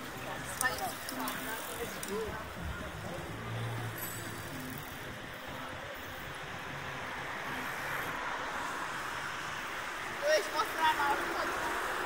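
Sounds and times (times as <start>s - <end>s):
background traffic: 0.0s - 12.0s
bicycles rolling on asphalt: 0.0s - 12.0s.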